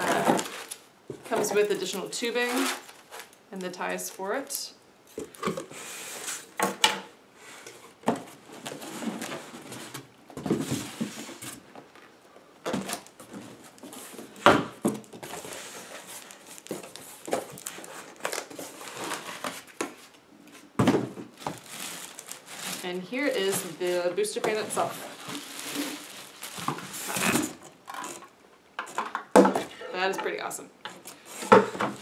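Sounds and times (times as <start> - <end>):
cardboard flaps rustling: 12.7 - 27.7
boxes knocking when set down: 20.8 - 21.6.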